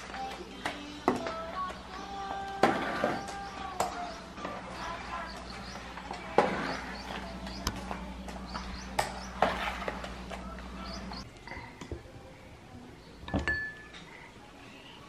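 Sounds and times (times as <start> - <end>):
steady low hum: 3.7 - 11.3
mop pushed across tiled floor: 9.4 - 10.4.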